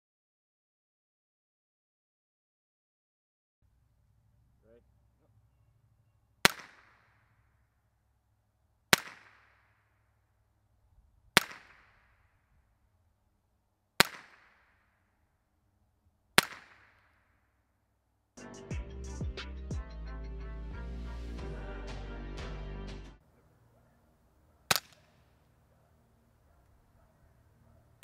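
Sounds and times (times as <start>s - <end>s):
rifle shots with echo: 6.4s - 7.4s, 8.9s - 9.7s, 11.3s - 12.2s, 14.0s - 14.9s, 16.4s - 17.2s, 24.6s - 25.3s.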